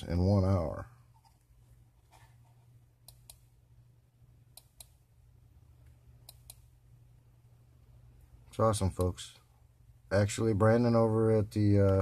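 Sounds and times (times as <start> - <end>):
faint low hum: 0.0 - 12.0
computer mouse clicks: 3.0 - 3.5, 4.5 - 5.0, 5.8 - 6.7.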